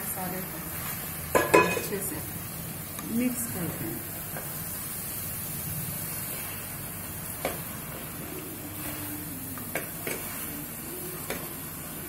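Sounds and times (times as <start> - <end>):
steady hiss: 0.0 - 12.0
wooden spatula stirring in wok: 0.1 - 2.2, 2.8 - 12.0
spatula knocking against pan: 1.4 - 1.9.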